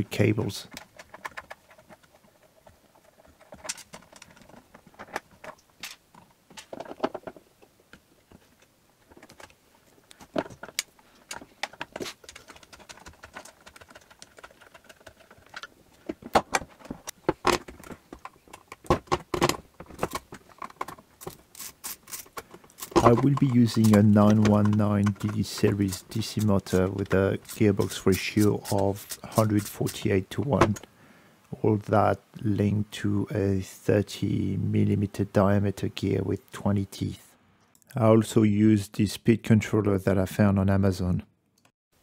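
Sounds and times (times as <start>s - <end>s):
clicks and rattles of parts: 0.6s - 30.9s
screwdriver working: 21.2s - 30.0s.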